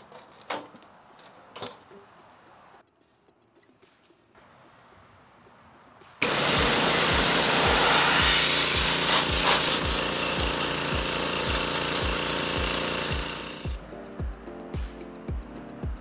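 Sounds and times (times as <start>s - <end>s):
pressure washer jet hissing: 6.2s - 13.8s.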